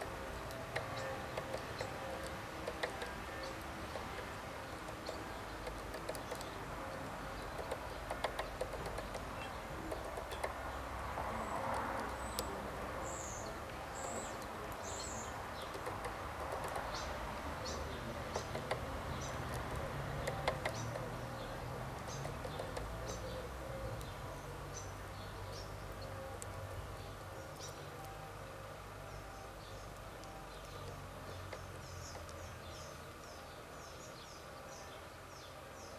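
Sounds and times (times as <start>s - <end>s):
bird pecking on wooden tray: 0.3s - 10.7s, 15.6s - 23.1s.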